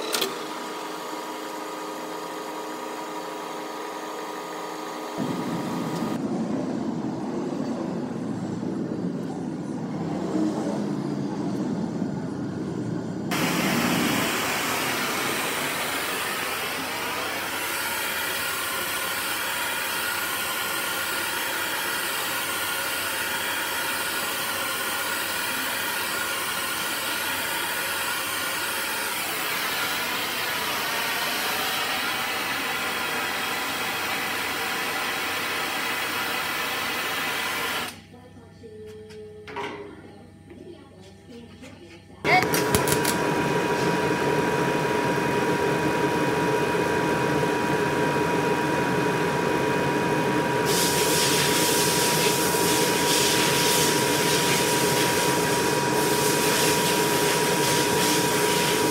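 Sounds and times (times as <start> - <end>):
gas torch flame hissing: 13.3 - 38.0, 42.4 - 48.0, 50.5 - 58.9.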